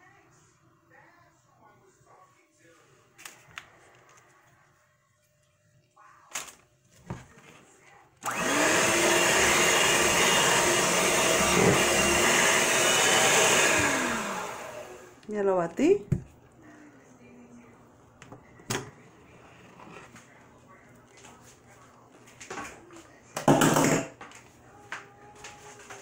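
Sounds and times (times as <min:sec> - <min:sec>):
electric hand mixer whirring: 0:08.2 - 0:15.2.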